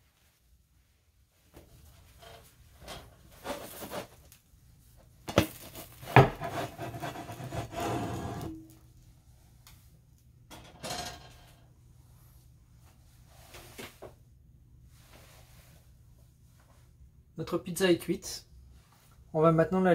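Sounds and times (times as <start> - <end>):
scraping and rubbing: 2.0 - 4.2, 5.6 - 8.7.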